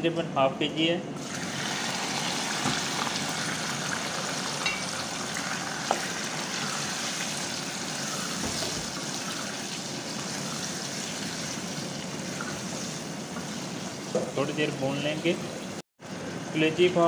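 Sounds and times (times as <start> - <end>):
liver sizzling in hot oil: 1.2 - 14.2.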